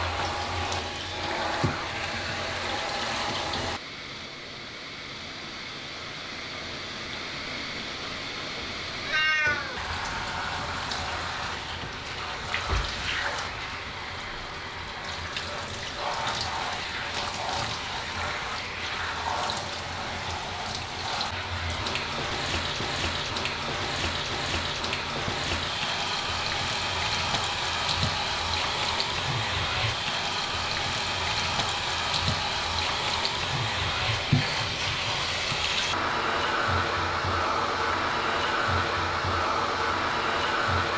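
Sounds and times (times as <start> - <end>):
shower water splashing on fur: 0.0 - 3.8, 9.8 - 36.0
cat meowing: 9.0 - 9.8.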